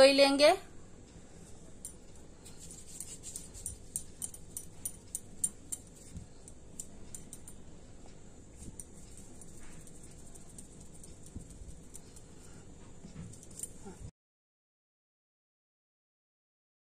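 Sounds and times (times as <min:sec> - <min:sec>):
bangles clinking on wrist: 0:01.5 - 0:07.7, 0:08.6 - 0:14.0.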